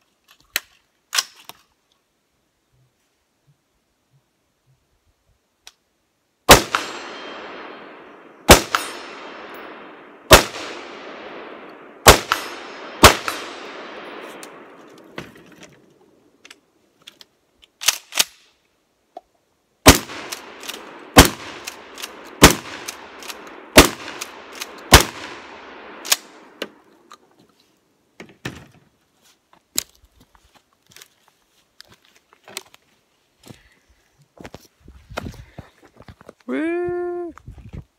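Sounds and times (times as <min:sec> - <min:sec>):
gunshots with forest echo: 0:06.4 - 0:15.4, 0:19.8 - 0:26.8
sharp gun clicks: 0:17.2 - 0:18.5, 0:19.9 - 0:27.2.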